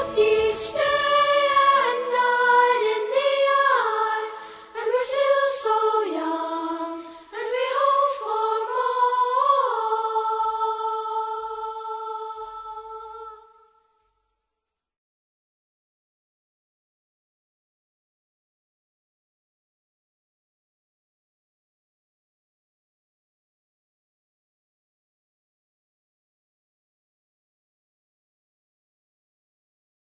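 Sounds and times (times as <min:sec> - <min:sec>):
unaccompanied singing: 0:00.0 - 0:13.7.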